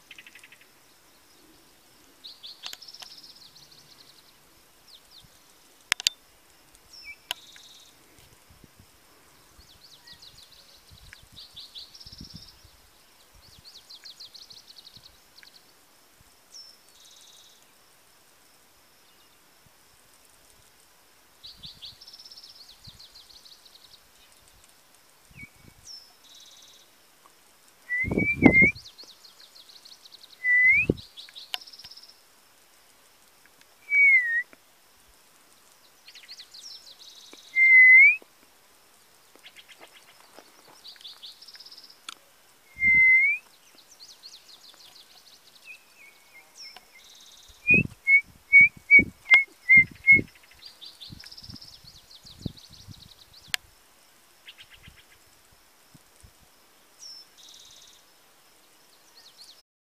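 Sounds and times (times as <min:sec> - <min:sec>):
bird whistles: 0:27.9 - 0:28.8, 0:30.4 - 0:31.0, 0:33.8 - 0:34.5, 0:37.4 - 0:38.2, 0:42.7 - 0:43.5, 0:47.6 - 0:50.4.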